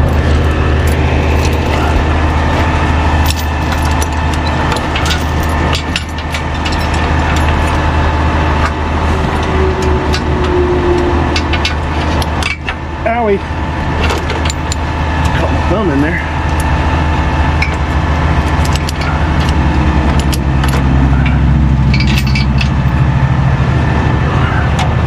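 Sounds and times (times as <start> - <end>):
truck engine idling: 0.0 - 25.0
metallic clinks and rattles: 3.2 - 7.8, 18.5 - 23.0.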